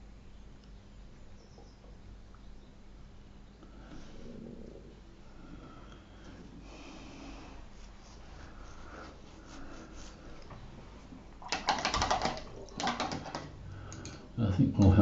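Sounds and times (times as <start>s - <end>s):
person breathing: 3.6s - 11.1s, 13.6s - 14.4s
sharp clicks and taps: 11.4s - 14.2s.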